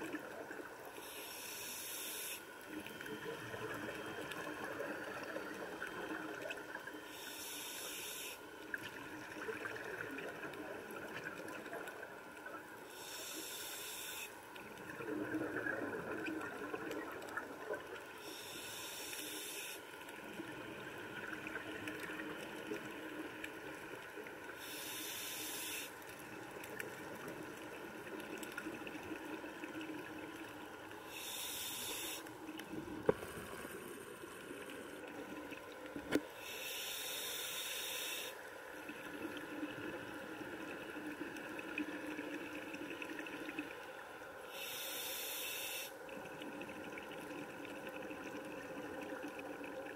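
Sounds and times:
underwater air bubbling: 14.6 - 19.0.

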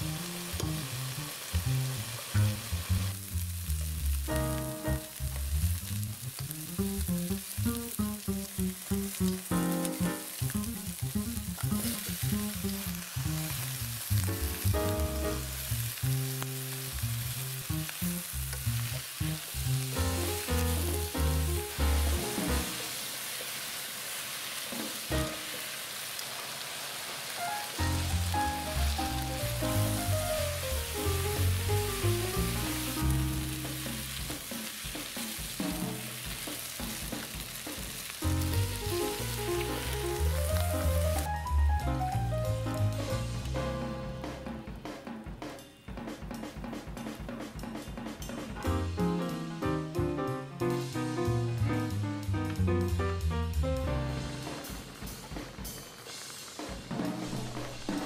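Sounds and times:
food sizzling in a frying pan: 0.0 - 44.4, 54.1 - 58.0
light background music: 4.1 - 5.6, 6.5 - 22.8, 27.4 - 55.3.

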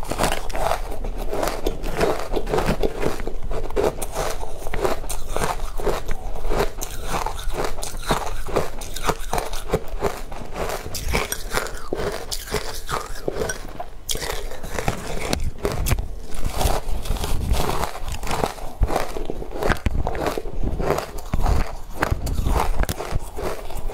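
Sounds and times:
crunching and chewing shaved ice: 0.0 - 23.9.

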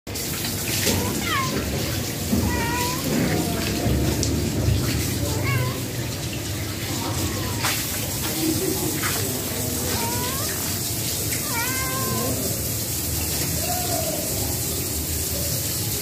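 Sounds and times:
cat meowing: 0.8 - 4.2, 5.2 - 6.1, 6.9 - 8.0, 9.7 - 12.6.

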